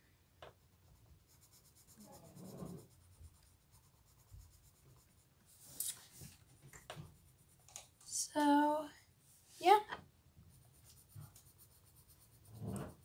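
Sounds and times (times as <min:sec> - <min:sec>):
pencil scratching on paper: 0:00.6 - 0:05.8, 0:10.5 - 0:13.0.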